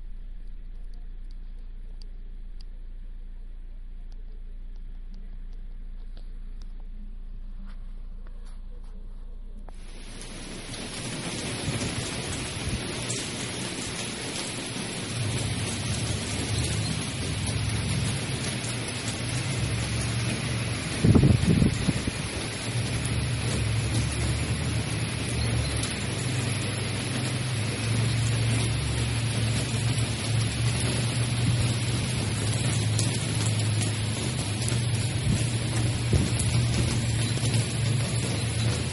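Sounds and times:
low rumble: 0:00.0 - 0:38.9
heavy rain: 0:09.7 - 0:38.9.

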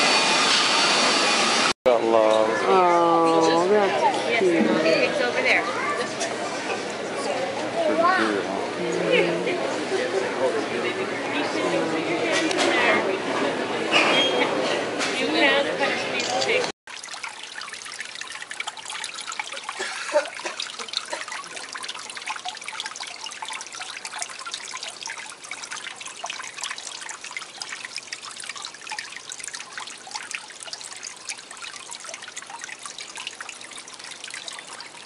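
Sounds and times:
water trickling into pond: 0:02.0 - 0:07.4, 0:15.4 - 0:35.0.

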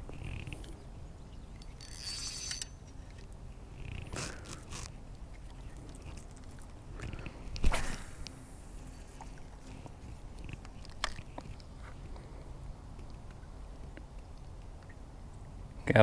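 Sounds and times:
reel clicks: 0:01.6 - 0:05.6, 0:10.4 - 0:11.7
fishing reel handling rubbing: 0:01.6 - 0:06.3.

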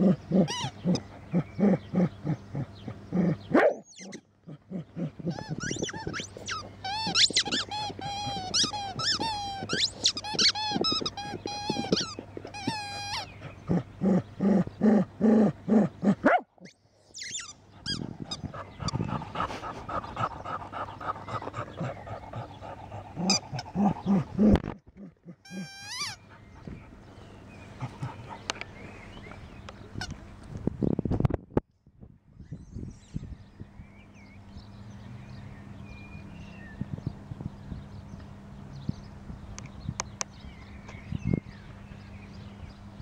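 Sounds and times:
squeaky toy squeaks: 0:00.5 - 0:00.7, 0:03.9 - 0:04.2, 0:05.3 - 0:13.3, 0:17.2 - 0:18.1, 0:25.5 - 0:26.2.

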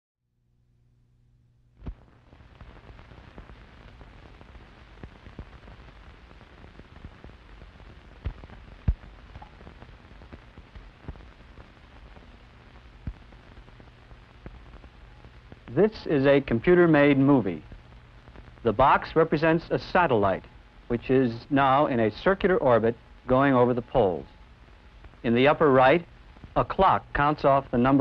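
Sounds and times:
low steady hum: 0:00.3 - 0:28.0
old film soundtrack hiss and crackle: 0:00.6 - 0:28.0
pops and clicks: 0:08.2 - 0:09.8.

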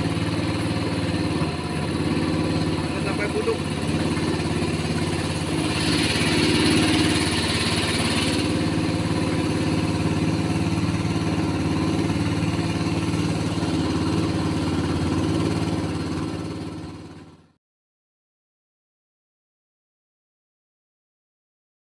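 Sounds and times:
boat engine running: 0:00.0 - 0:17.6
water hissing: 0:02.0 - 0:15.4.

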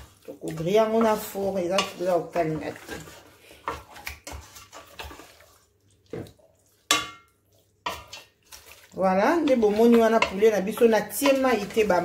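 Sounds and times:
wet squelching of stirred chicken: 0:00.0 - 0:12.0
spoon knocking metal pot: 0:06.9 - 0:07.3.

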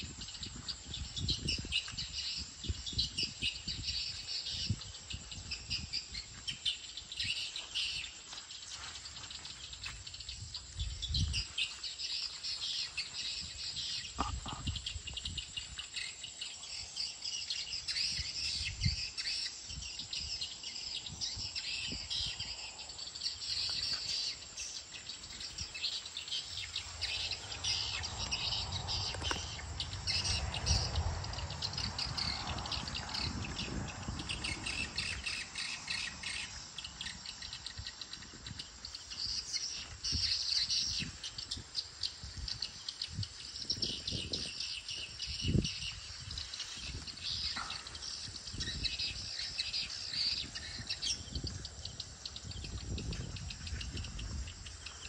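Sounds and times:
swiftlets chirping and twittering: 0:08.7 - 0:55.0.

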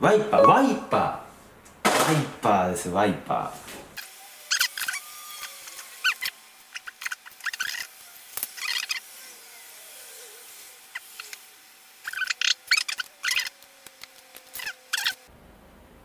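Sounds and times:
plastic squeaks: 0:06.0 - 0:07.9, 0:12.1 - 0:15.3.

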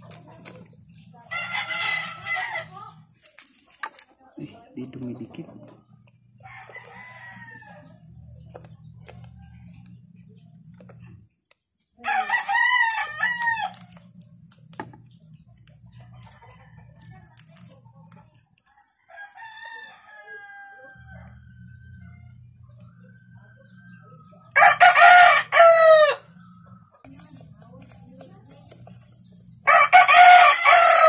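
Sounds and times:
rooster crowing: 0:01.3 - 0:02.9, 0:06.4 - 0:07.9, 0:12.0 - 0:13.8, 0:19.0 - 0:21.5, 0:24.5 - 0:26.3, 0:29.6 - 0:31.0
low steady hum: 0:21.0 - 0:31.0.

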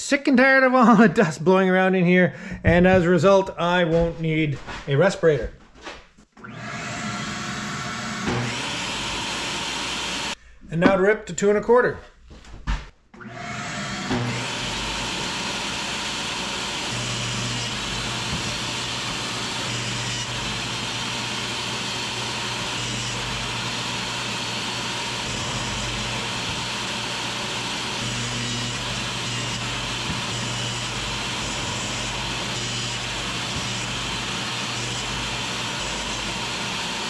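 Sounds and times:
dust vacuum running: 0:06.4 - 0:10.4, 0:13.2 - 0:37.0
table saw running: 0:06.4 - 0:10.4, 0:13.2 - 0:37.0
saw ripping wooden board: 0:14.0 - 0:37.0.

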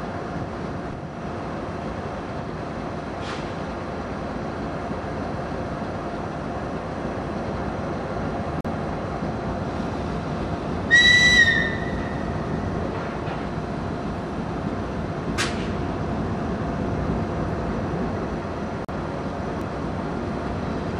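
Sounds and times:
diesel locomotive running: 0:00.0 - 0:20.9
short high-pitched whistle: 0:10.9 - 0:11.9.

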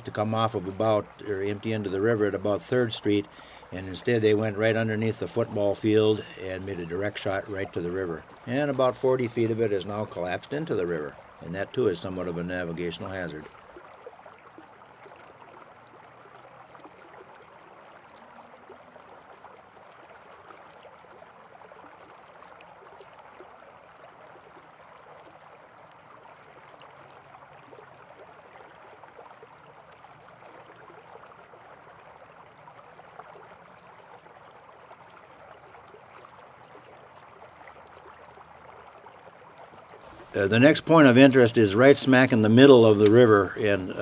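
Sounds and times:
faint steady rushing noise: 0:00.0 - 0:13.8, 0:39.3 - 0:44.0.

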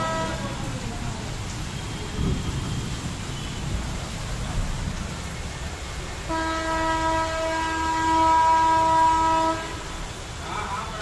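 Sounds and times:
vehicle horn blast: 0:00.0 - 0:00.4, 0:06.3 - 0:09.8
heavy rain: 0:00.0 - 0:11.0.

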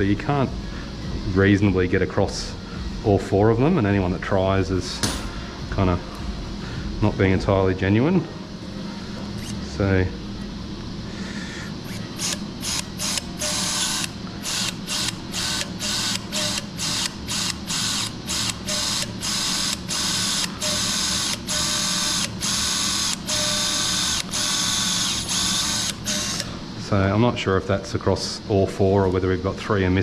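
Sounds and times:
bone drill drilling: 0:13.0 - 0:26.4.

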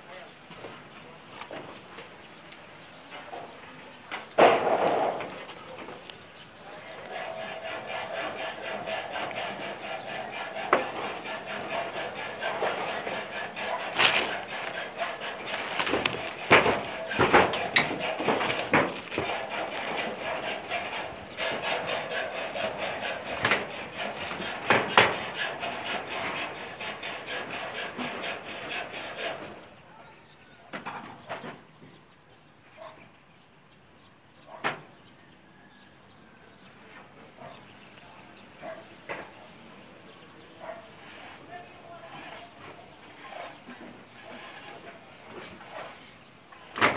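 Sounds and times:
faint background noise: 0:00.0 - 0:46.9
scraping rustle: 0:06.8 - 0:29.6, 0:40.6 - 0:46.9
dog barking: 0:32.7 - 0:33.1, 0:34.4 - 0:34.8, 0:37.4 - 0:37.7, 0:38.6 - 0:38.9, 0:40.6 - 0:41.0.

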